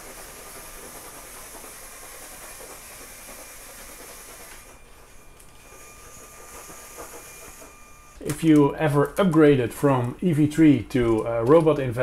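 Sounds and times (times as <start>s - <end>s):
wheels rolling on wooden floor: 0.0s - 4.8s
robot motors whirring: 5.6s - 8.4s.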